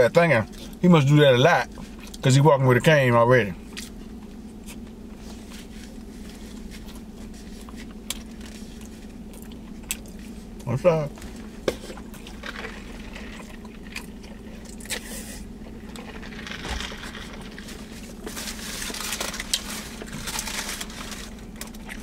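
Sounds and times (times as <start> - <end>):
biting and chewing: 6.0 - 22.0
crackly paper wrapper handling: 14.7 - 22.0.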